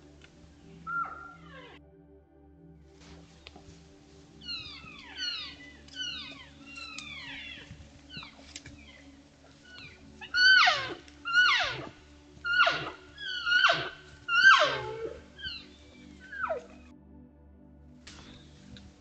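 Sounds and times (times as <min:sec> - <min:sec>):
elk mewing: 0:00.2 - 0:01.8, 0:03.5 - 0:16.8.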